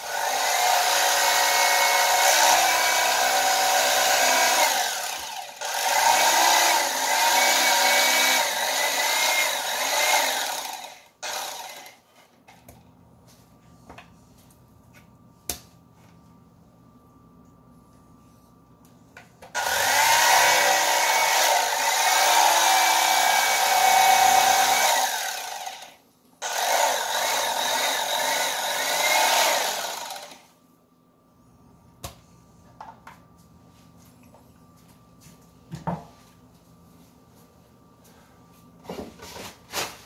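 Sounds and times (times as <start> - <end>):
electric fillet knife motor whine: 0.0 - 12.0, 19.6 - 30.5.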